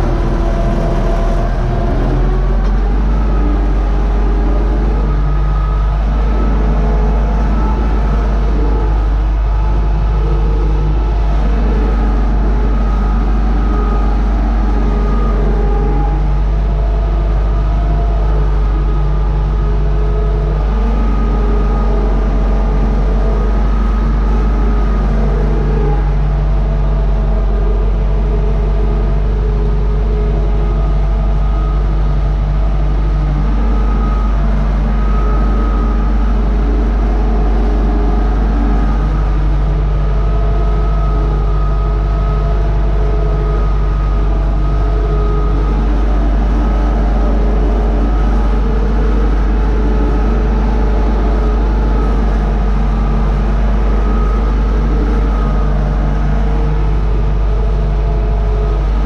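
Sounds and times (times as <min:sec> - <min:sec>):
tractor diesel engine drone: 0:00.0 - 0:59.0.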